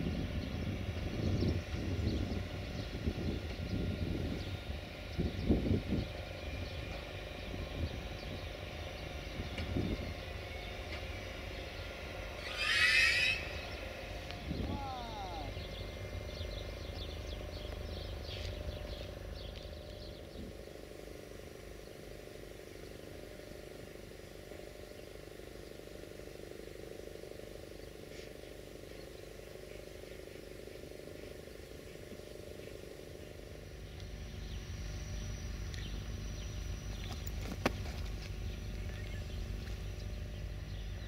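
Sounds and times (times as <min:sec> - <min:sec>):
low mechanical hum: 0:00.0 - 0:41.0
bird chirps: 0:12.4 - 0:20.5, 0:33.9 - 0:41.0.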